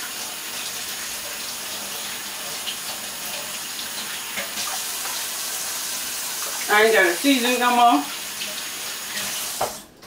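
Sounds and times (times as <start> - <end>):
tap water running: 0.0 - 10.0.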